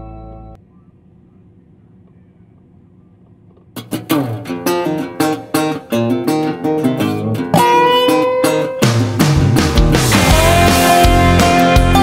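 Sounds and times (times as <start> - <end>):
faint low hum: 0.0 - 4.4
country song with strummed guitar: 3.8 - 12.0.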